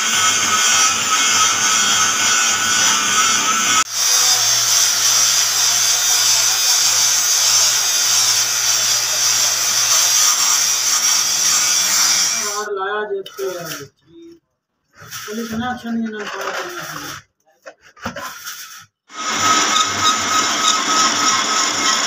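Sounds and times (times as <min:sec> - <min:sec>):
metal lathe cutting: 0:00.0 - 0:12.6, 0:19.1 - 0:22.0.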